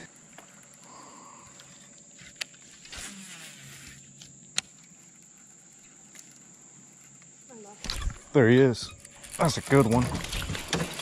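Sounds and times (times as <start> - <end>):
brief rustle: 1.6 - 4.9.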